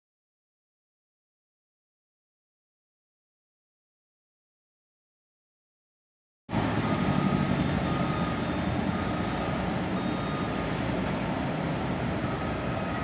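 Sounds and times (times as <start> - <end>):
heavy machinery engines running: 6.5 - 13.0
reversing alarm beeping: 6.6 - 13.0.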